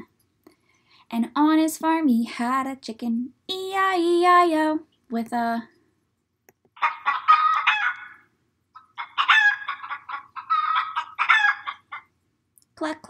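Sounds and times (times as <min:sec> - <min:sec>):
hen clucking: 0:06.8 - 0:12.2.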